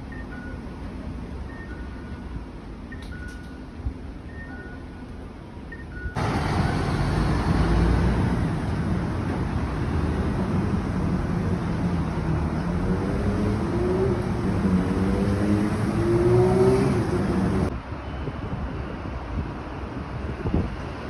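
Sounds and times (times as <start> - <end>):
street traffic rumble: 0.0 - 21.0
car engine accelerating past: 11.8 - 17.7.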